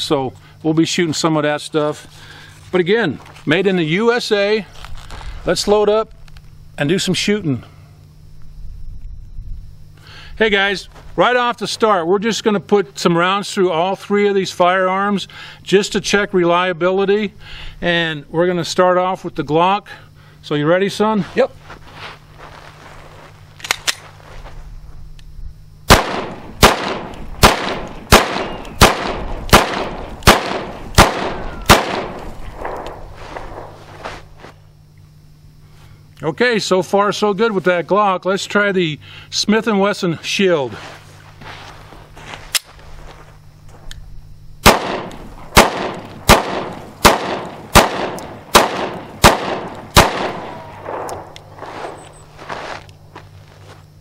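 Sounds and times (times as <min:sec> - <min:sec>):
small click: 0:23.6 - 0:24.1
pistol shots with echo: 0:25.9 - 0:33.7, 0:44.6 - 0:51.4.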